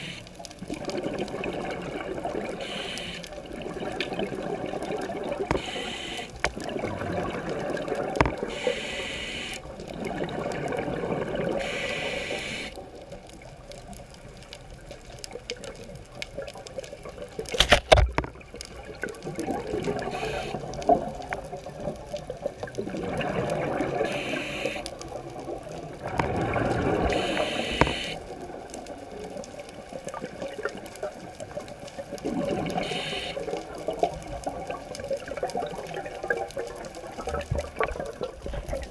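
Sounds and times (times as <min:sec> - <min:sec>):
diver breathing through regulator: 0:00.0 - 0:00.3, 0:02.6 - 0:03.3, 0:05.5 - 0:06.4, 0:08.5 - 0:09.6, 0:11.6 - 0:12.8, 0:20.0 - 0:20.6, 0:24.0 - 0:24.9, 0:27.0 - 0:28.2, 0:32.8 - 0:33.5.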